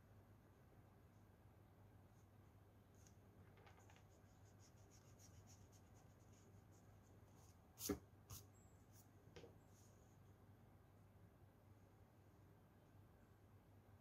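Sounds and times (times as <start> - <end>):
low steady hum: 0.0 - 14.0
pencil strokes scratching on paper: 3.8 - 9.1.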